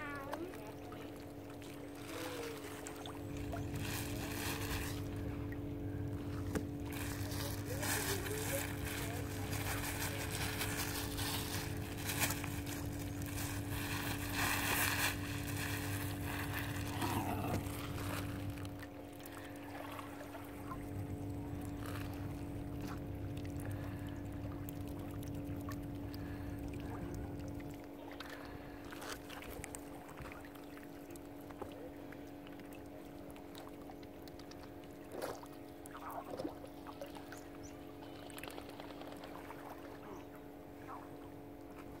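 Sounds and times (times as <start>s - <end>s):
steady hum: 0.0s - 42.0s
water lapping and splashing: 0.0s - 42.0s
low rumble: 3.0s - 18.9s.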